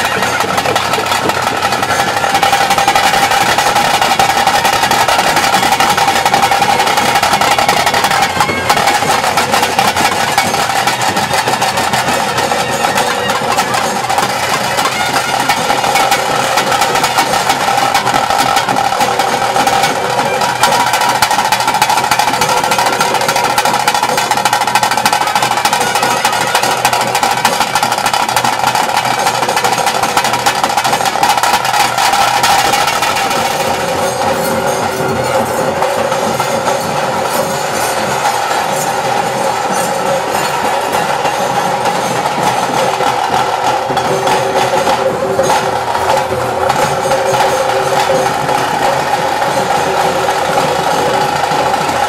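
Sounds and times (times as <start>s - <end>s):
fast drumming: 0.0s - 52.0s
steady held notes: 29.2s - 52.0s.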